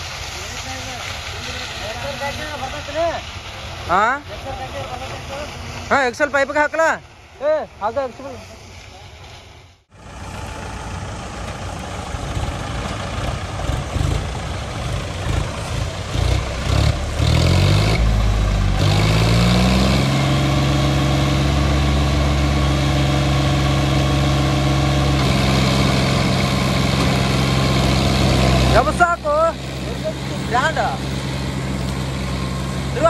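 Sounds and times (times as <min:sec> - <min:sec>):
diesel tractor engine revving: 0:09.9 - 0:33.0.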